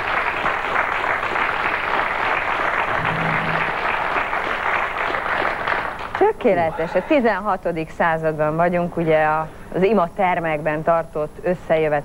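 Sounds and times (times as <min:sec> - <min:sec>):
studio audience applauding: 0:00.0 - 0:06.4.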